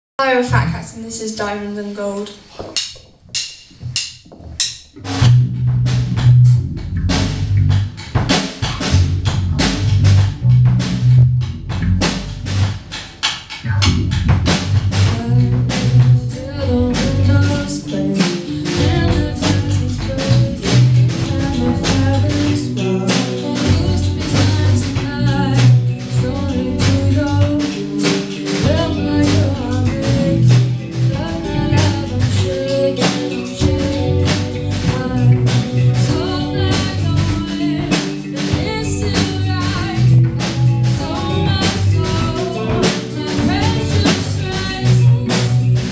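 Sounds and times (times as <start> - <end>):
drum kit: 0.2 - 45.9
electric bass: 3.8 - 45.9
electric guitar: 5.0 - 45.9
person singing lead vocal: 15.0 - 45.9.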